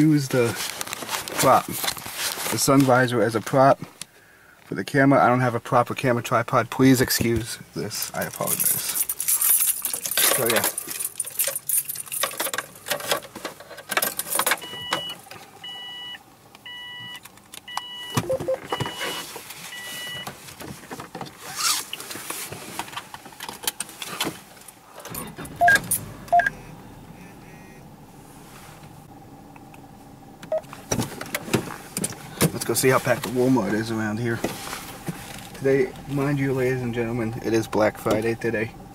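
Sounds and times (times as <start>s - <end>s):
low hum inside car: 0.0s - 38.9s
car warning chime beeping: 14.6s - 20.3s, 25.5s - 28.0s, 30.5s - 30.8s.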